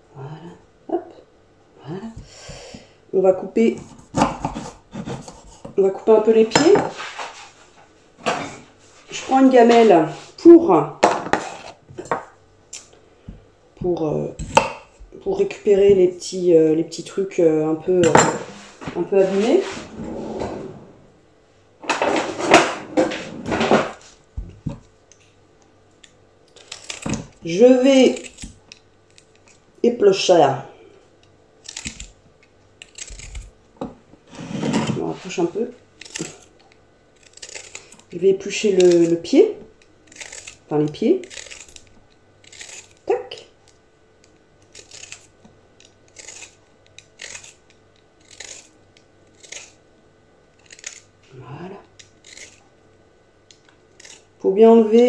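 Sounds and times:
rustling scraping on chopping board: 0:03.7 - 0:05.8, 0:06.6 - 0:10.4, 0:11.2 - 0:11.8, 0:18.3 - 0:21.1, 0:21.9 - 0:24.3, 0:34.2 - 0:36.5
vegetable peeler scraping: 0:03.8 - 0:05.8, 0:11.3 - 0:11.8, 0:26.5 - 0:29.6, 0:31.6 - 0:32.2, 0:32.8 - 0:33.6, 0:34.3 - 0:43.2, 0:44.2 - 0:49.8, 0:50.6 - 0:51.1, 0:51.9 - 0:52.7, 0:53.5 - 0:54.4.

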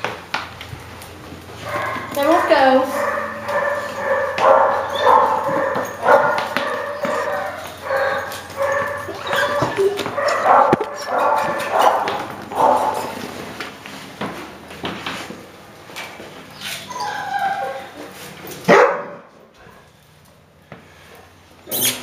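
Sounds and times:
puppies yapping and whining: 0:01.6 - 0:13.1, 0:16.5 - 0:18.6.

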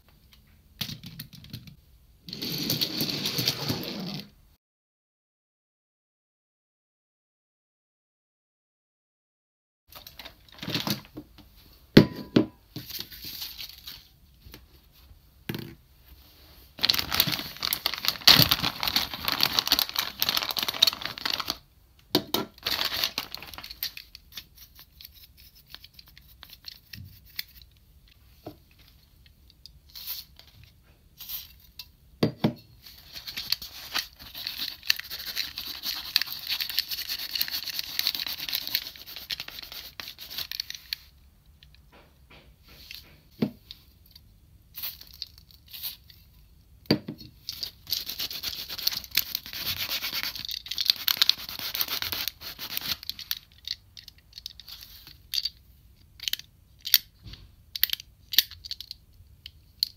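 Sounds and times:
plastic bag rustling: 0:16.3 - 0:21.6, 0:22.5 - 0:23.8
paper rubbing on plastic: 0:16.8 - 0:21.5, 0:33.6 - 0:40.5, 0:47.9 - 0:53.0.

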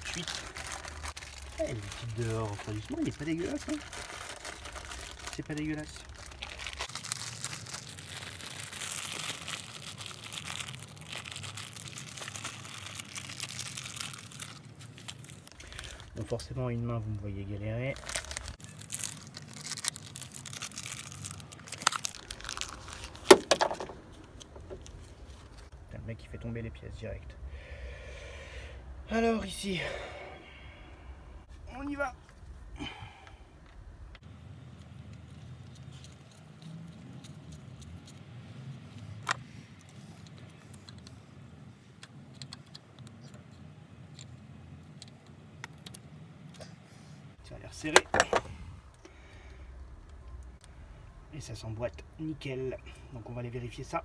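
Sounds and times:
rag crinkling and rustling: 0:00.0 - 0:25.8, 0:34.6 - 0:46.7, 0:47.8 - 0:49.0.

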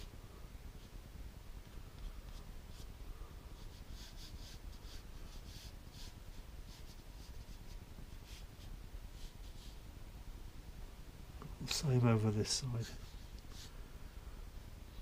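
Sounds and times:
paintbrush scratching on paper: 0:02.0 - 0:02.9, 0:03.6 - 0:09.8, 0:12.1 - 0:13.7.

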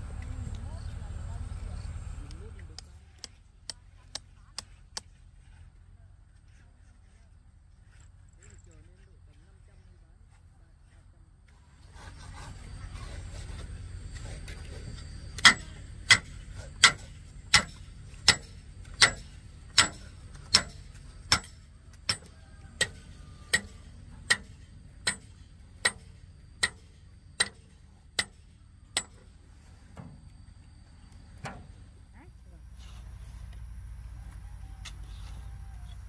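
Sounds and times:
hand tool striking hard surface: 0:15.4 - 0:28.4.

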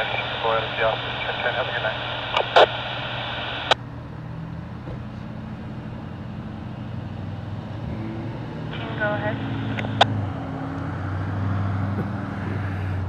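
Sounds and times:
police scanner static: 0:00.0 - 0:03.8, 0:08.7 - 0:10.1
low vehicle engine hum: 0:00.0 - 0:13.0.

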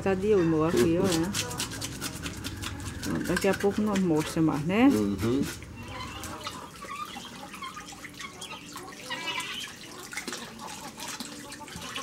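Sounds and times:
tap water splashing into sink: 0:08.2 - 0:12.0.

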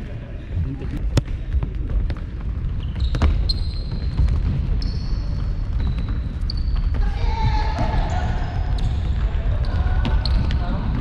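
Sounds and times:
low rumble: 0:00.3 - 0:02.1
ball kicked and bouncing: 0:00.9 - 0:07.0
shoe squeaks: 0:02.8 - 0:07.0.

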